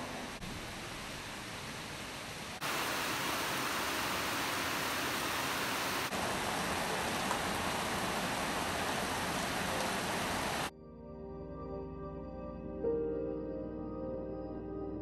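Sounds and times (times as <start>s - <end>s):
heavy rain on foliage: 0.0s - 10.7s.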